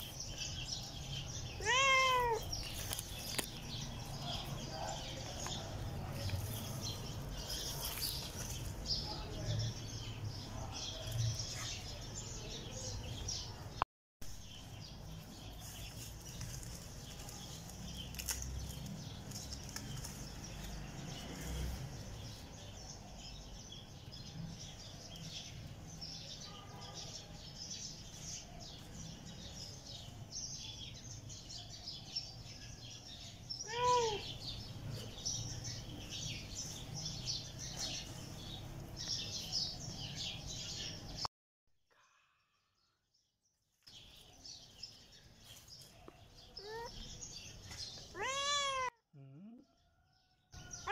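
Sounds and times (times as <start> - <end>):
small birds chirping: 0.0 - 41.3, 42.7 - 50.9.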